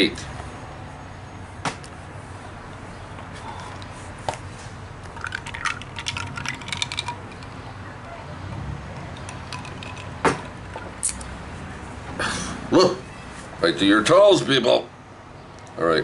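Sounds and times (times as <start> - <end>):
bottle clicks: 5.0 - 7.5, 9.1 - 11.2.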